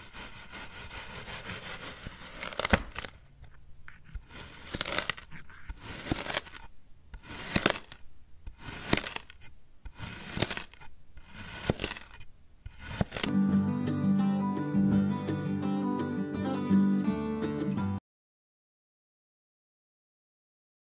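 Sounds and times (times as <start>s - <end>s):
knife slicing through sand: 0.0s - 3.1s, 4.2s - 13.3s.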